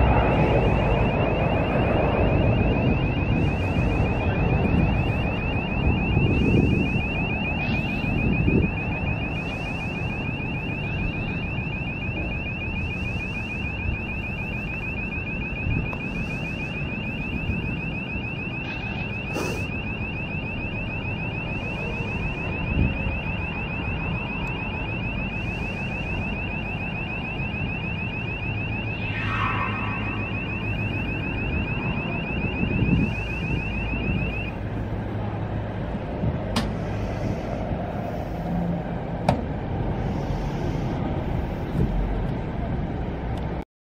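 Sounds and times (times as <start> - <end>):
pulsing high-pitched warning buzzer: 0.0 - 34.9, 40.0 - 41.7.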